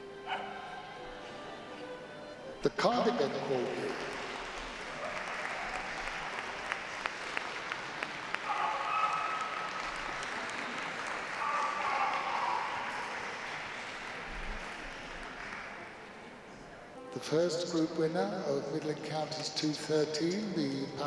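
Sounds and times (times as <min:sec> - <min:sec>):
crowd applauding: 0:02.8 - 0:16.4
sharp claps: 0:03.5 - 0:16.0.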